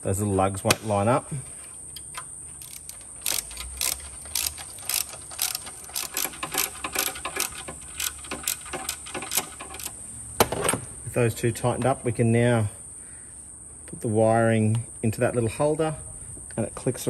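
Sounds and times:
hand ratchet clicking: 2.0 - 10.0.

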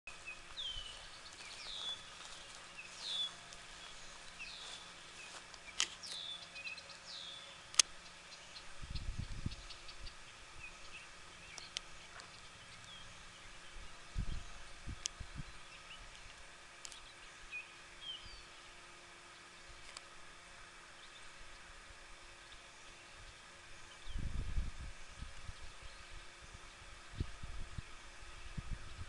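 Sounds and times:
bird calling: 0.1 - 14.6
sharp clicks: 7.7 - 8.0.

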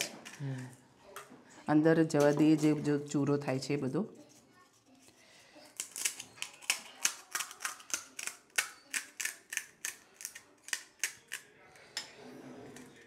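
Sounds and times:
crisp shells cracking: 5.7 - 11.5.

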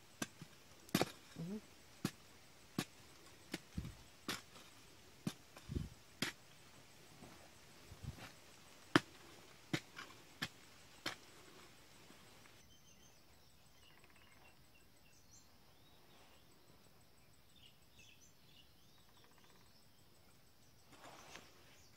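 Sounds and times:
insects chirping: 0.0 - 21.9
hoe chopping into earth: 0.2 - 6.4, 8.0 - 11.7.

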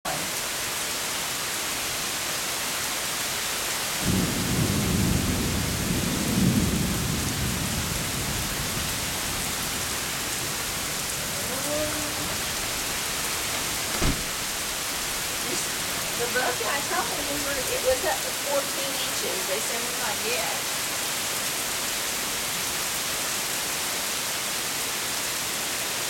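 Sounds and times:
heavy rain pouring: 0.0 - 26.0
thunder rumbling: 4.0 - 20.7.

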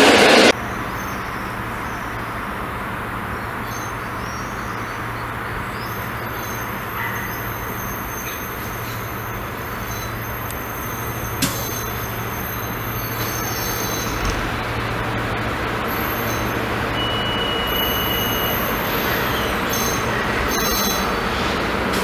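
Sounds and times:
diesel locomotive droning: 0.0 - 22.0
high-pitched wheel squeal: 15.9 - 21.6.

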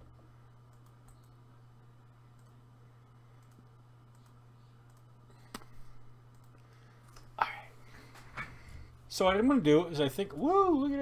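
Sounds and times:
steady low hum: 0.0 - 11.0
faint clicks: 0.7 - 1.4, 2.3 - 2.6, 3.4 - 5.7, 6.3 - 7.3.

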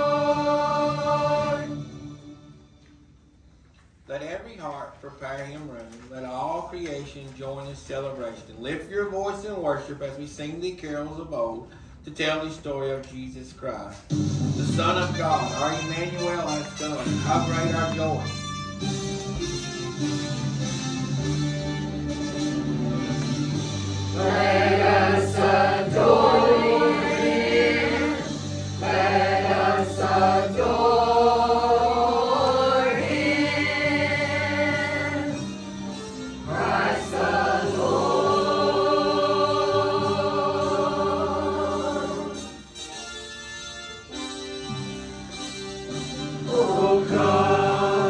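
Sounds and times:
church choir singing: 0.0 - 2.2, 24.1 - 35.5, 36.4 - 42.6, 46.4 - 48.0.

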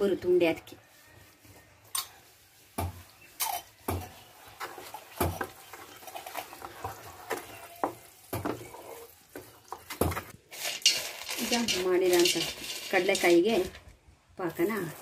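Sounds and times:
wooden spatula knocking pan: 6.8 - 13.3.

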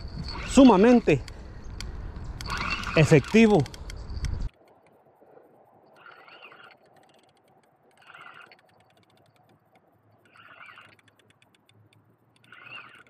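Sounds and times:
frog calling: 0.0 - 1.0, 2.4 - 3.5, 5.8 - 7.3, 7.9 - 9.2, 10.2 - 11.2, 12.4 - 13.0
faint rapid ticking: 0.5 - 13.0.

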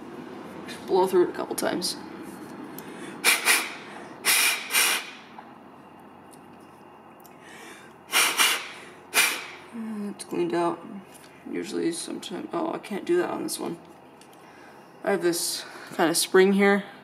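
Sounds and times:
person blowing puffs of air: 2.8 - 5.3, 7.4 - 9.7.

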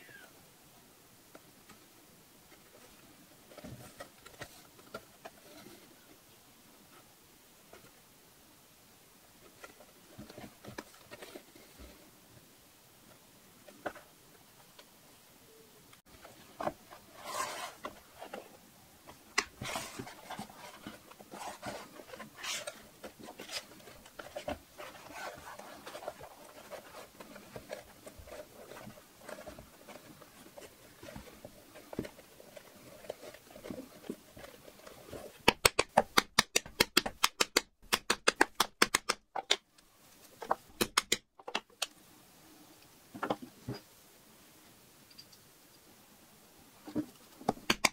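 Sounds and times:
leather rustling and scratching: 17.0 - 18.5, 19.5 - 35.4.

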